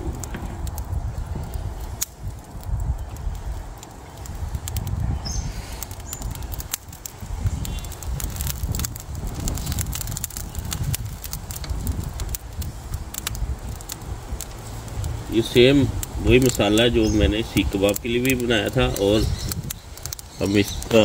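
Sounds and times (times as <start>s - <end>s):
charcoal fire crackling: 0.0s - 21.0s
wind buffeting microphone: 0.0s - 21.0s.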